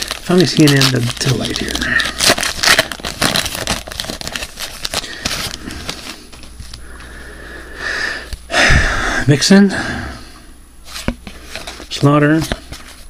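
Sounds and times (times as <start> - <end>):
card pack wrapper crinkling: 0.0 - 6.8.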